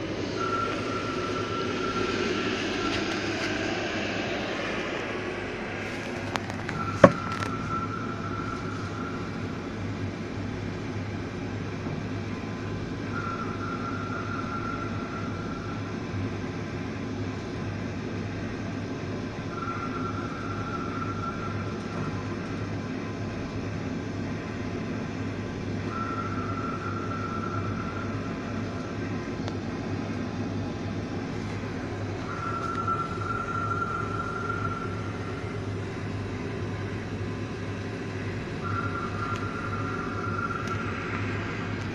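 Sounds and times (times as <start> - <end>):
high tone: 0.0 - 9.5, 31.6 - 41.9
boat engine drone: 0.0 - 41.9.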